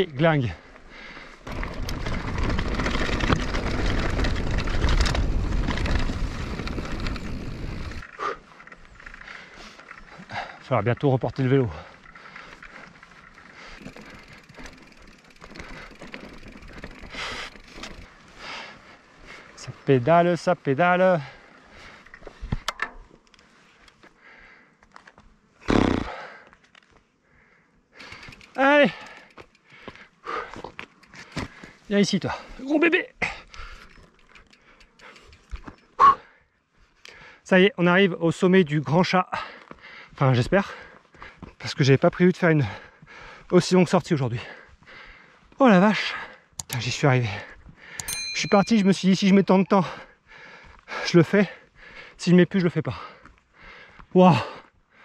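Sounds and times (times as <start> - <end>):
bike rattling over bumps: 0.9 - 23.2, 27.9 - 32.6, 33.2 - 36.3, 46.8 - 50.6
tyres crunching on stones: 1.4 - 8.0
rider grunting: 1.4 - 18.1, 25.6 - 26.4, 36.0 - 36.4
wind buffeting microphone: 1.5 - 8.0.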